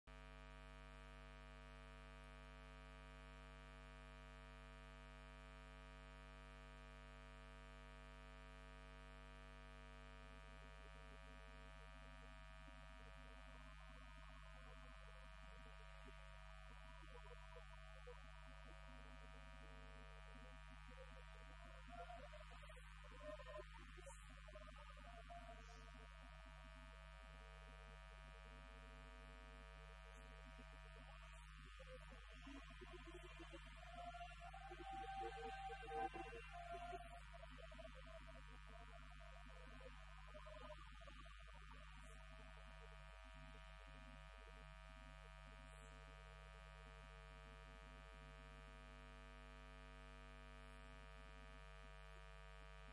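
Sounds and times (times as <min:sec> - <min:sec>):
electrical mains hum: 0:04.2 - 0:49.0
faint choir singing: 0:32.2 - 0:39.4.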